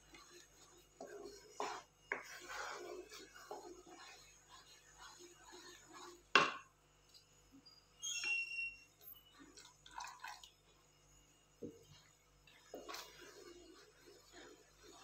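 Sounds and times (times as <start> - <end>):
wooden spatula stirring: 0.0 - 7.4, 8.2 - 15.0
liquid pouring into a pan: 9.5 - 10.5.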